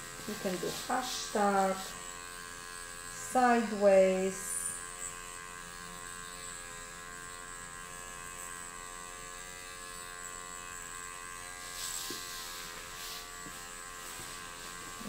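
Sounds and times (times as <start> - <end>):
microneedling pen motor hum: 0.0 - 15.0
soft hiss: 11.6 - 15.0.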